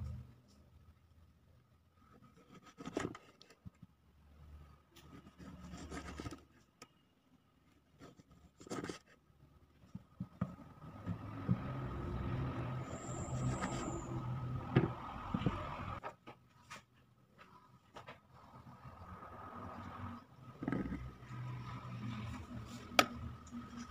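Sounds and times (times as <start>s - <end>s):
low engine-like hum: 10.6s - 16.0s.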